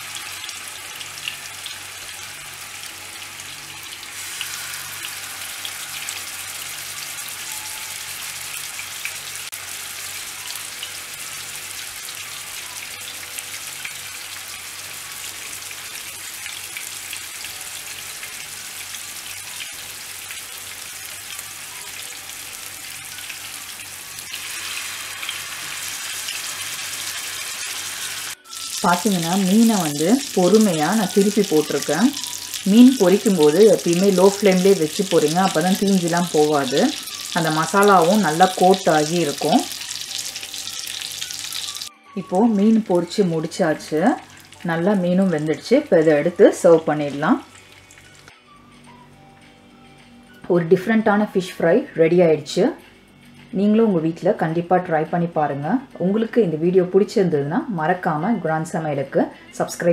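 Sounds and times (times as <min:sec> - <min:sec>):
fish sizzling in oil: 0:00.0 - 0:41.9, 0:42.5 - 0:48.3.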